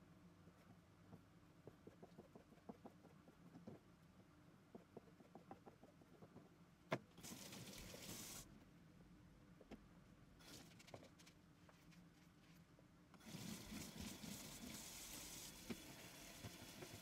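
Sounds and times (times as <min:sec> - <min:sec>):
water running into steel sink: 0:13.2 - 0:17.0.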